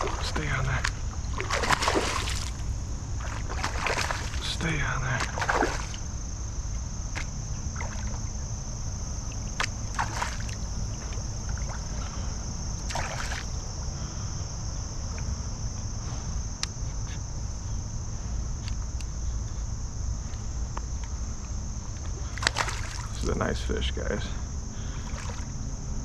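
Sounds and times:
creek water sloshing: 0.0 - 14.0, 22.1 - 23.3, 24.8 - 25.7
fish splashing: 1.3 - 4.4, 5.2 - 6.1, 7.1 - 8.5, 9.2 - 12.1, 12.8 - 13.6, 22.3 - 23.2.

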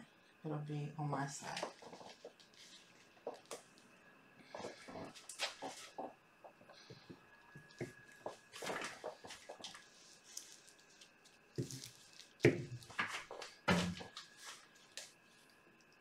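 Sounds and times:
canvas rustling and handling: 8.1 - 15.5.

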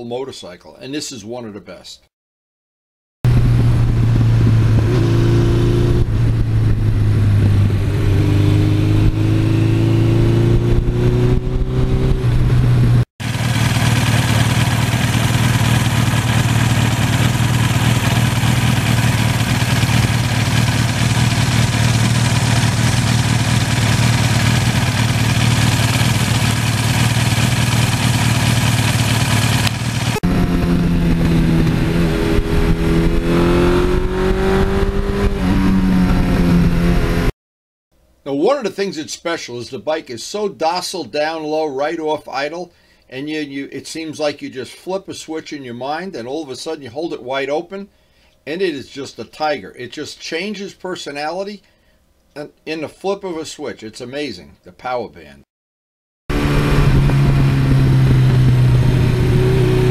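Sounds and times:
motorcycle engine running: 3.3 - 37.3, 56.3 - 59.9.

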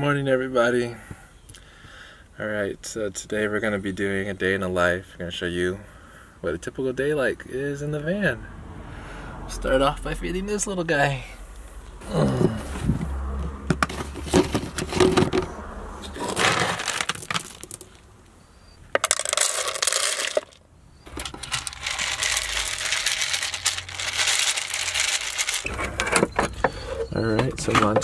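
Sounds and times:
dry kibble rattling into plastic bowl: 16.2 - 17.9, 19.0 - 25.7.

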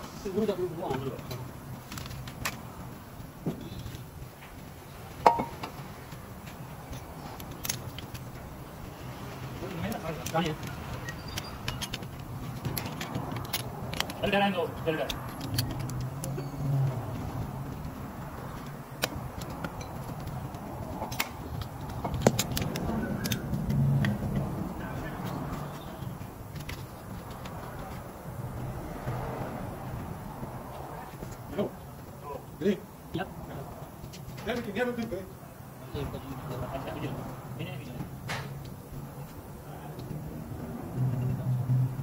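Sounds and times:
metallic clinks of tools: 15.0 - 16.7.

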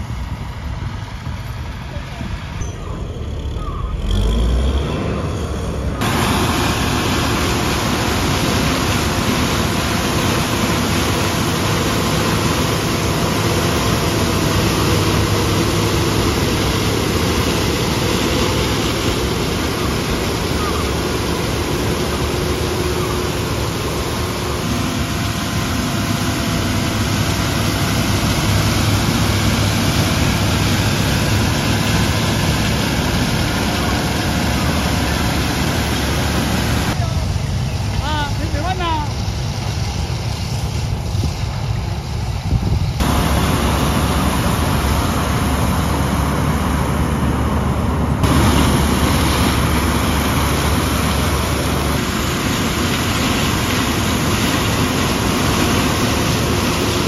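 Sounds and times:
harvester engine and machinery din: 0.0 - 57.0
machinery whine: 0.0 - 57.0.

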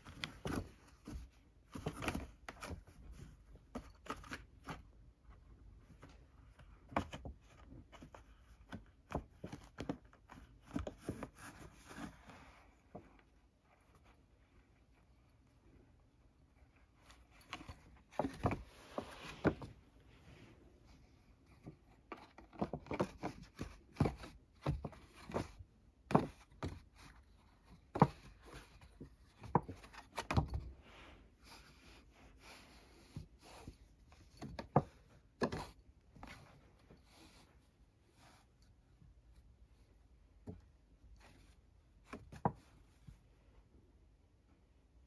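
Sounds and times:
cat pawing cardboard box: 17.0 - 37.4.

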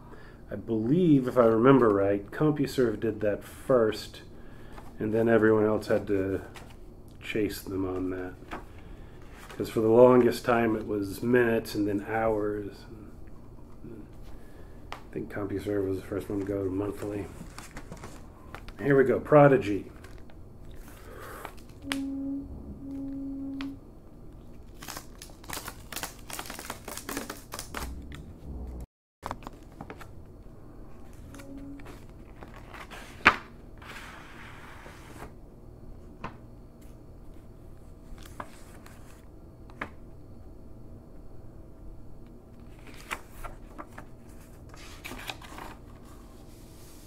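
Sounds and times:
paper envelope tearing: 24.7 - 28.0.

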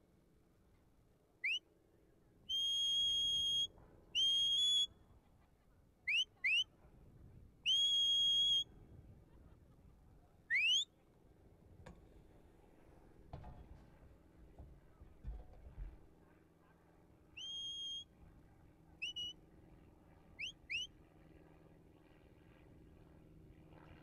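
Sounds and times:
high whistle commands: 1.4 - 1.7, 2.5 - 4.9, 6.1 - 6.7, 7.7 - 8.7, 10.5 - 10.9, 17.4 - 18.1, 19.0 - 19.4, 20.4 - 20.9.

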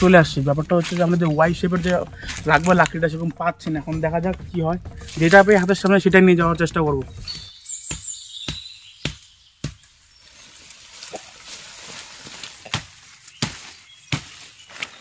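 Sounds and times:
blade chopping wood: 7.2 - 10.0, 12.4 - 15.0.

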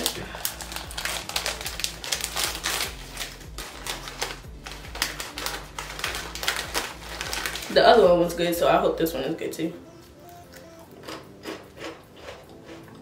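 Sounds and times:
plastic snack bag crinkling: 0.0 - 8.3.

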